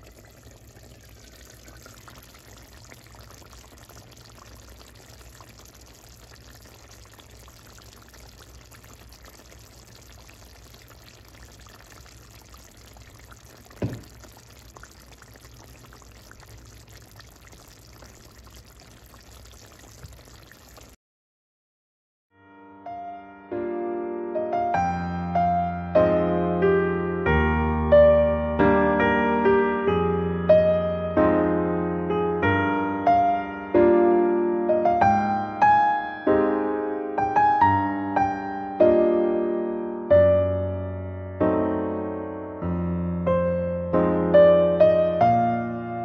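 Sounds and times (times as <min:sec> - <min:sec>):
curry bubbling in pot: 0:00.0 - 0:21.0
sharp knock: 0:13.8 - 0:14.2.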